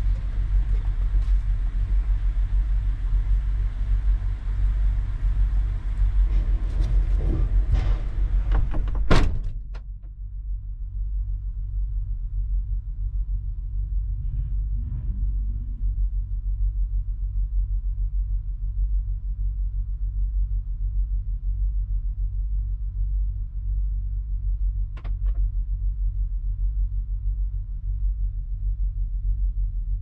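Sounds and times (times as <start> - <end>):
muffled low hum: 0.0 - 30.0
truck door slamming: 8.5 - 9.6.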